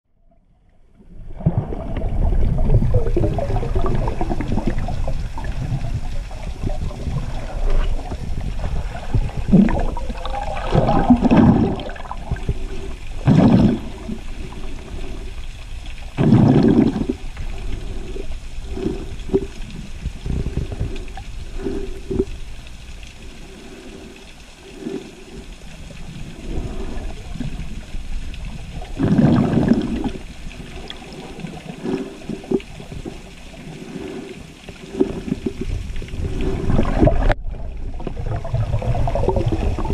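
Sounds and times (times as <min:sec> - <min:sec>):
water sloshing underwater: 0:00.1 - 0:39.9
bubbly bursts: 0:01.0 - 0:15.2, 0:16.2 - 0:17.4, 0:24.8 - 0:33.2, 0:34.9 - 0:39.9
water rushing surges: 0:01.2 - 0:15.2.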